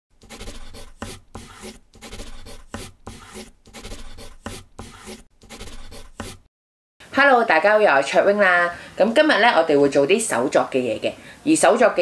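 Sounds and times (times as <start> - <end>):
pen scratching on paper: 0.2 - 6.5.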